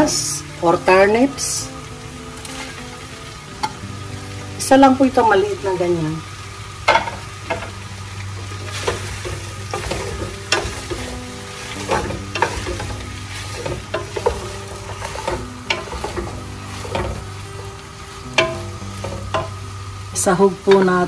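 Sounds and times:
vegetables sizzling in a pot: 0.0 - 21.0
spatula scraping and knocking pot: 6.9 - 7.7, 8.6 - 17.4, 18.3 - 19.6.

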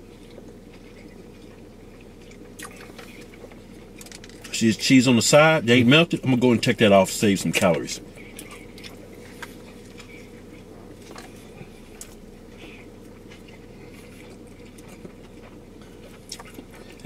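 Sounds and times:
people chewing food: 0.0 - 17.0
steady low hum: 0.0 - 17.0
wet mouth clicks: 2.3 - 3.4.

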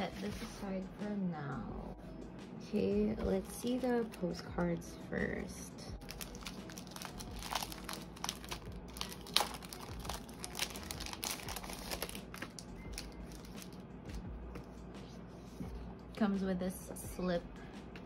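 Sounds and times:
plastic packaging crinkling: 6.0 - 13.8.

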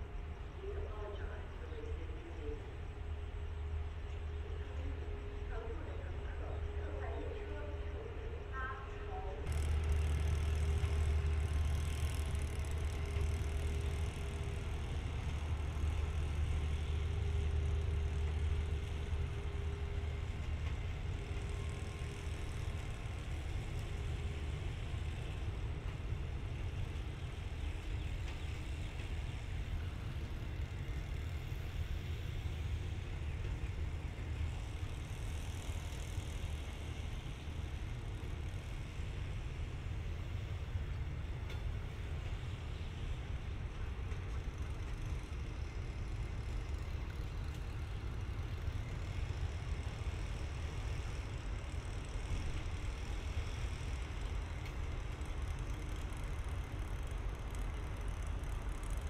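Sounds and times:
diesel engine idling: 0.0 - 41.4
faint steady hum: 0.0 - 59.0.

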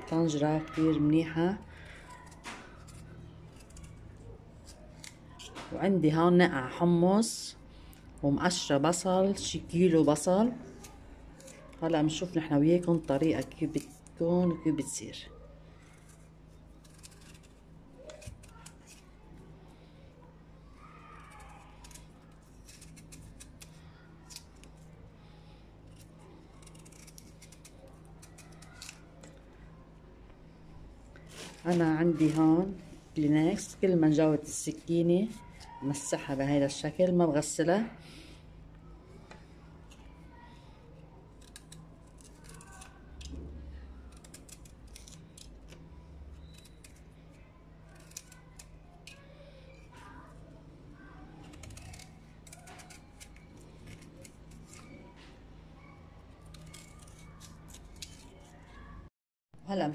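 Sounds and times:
knife cutting and scraping skin: 0.0 - 5.8, 9.8 - 14.2, 15.8 - 19.2, 20.8 - 25.0, 25.9 - 29.4, 31.2 - 36.4, 41.3 - 50.4, 51.0 - 55.2, 56.3 - 58.8
steady low hum: 0.0 - 59.9.

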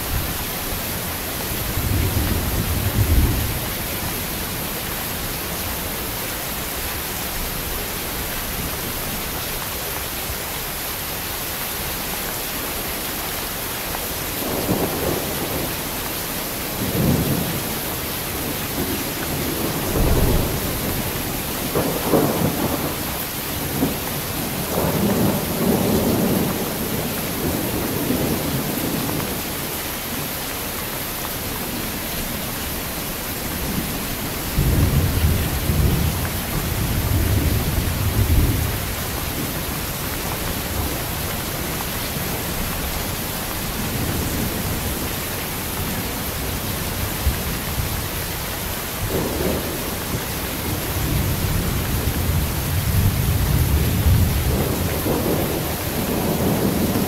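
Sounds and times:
heavy rain: 0.0 - 57.0
thunder rumbling: 1.4 - 6.0, 16.6 - 29.5, 33.4 - 48.2, 48.8 - 57.0.

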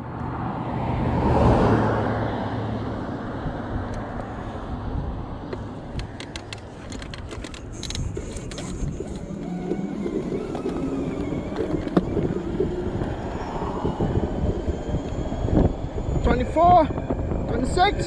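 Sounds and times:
car passing: 0.0 - 18.0
wind and road noise: 0.0 - 18.0
sharp clicks and rattles: 5.5 - 13.2.

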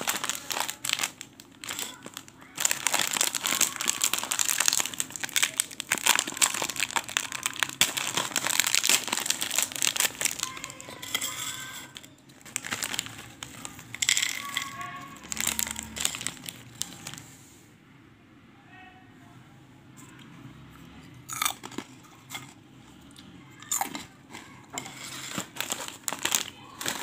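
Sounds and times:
foil snack packet crinkling: 0.0 - 17.3, 23.6 - 27.0.

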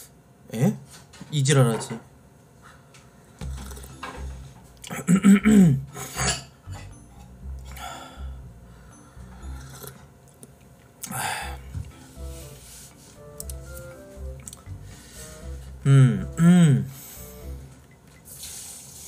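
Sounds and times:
quiet background music: 3.1 - 19.0.

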